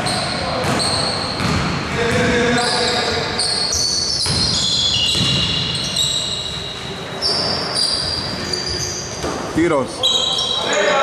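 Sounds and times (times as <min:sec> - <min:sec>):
basketball bouncing: 0:00.1 - 0:02.6, 0:04.2 - 0:06.0
shoes squeaking on hardwood: 0:02.6 - 0:10.6.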